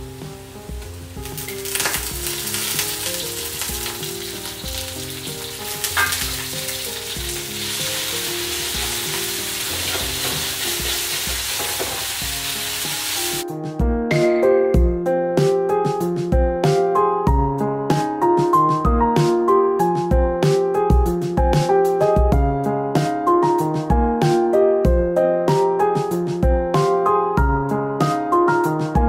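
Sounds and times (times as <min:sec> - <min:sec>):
meat sizzling in hot oil: 0:00.0 - 0:13.4.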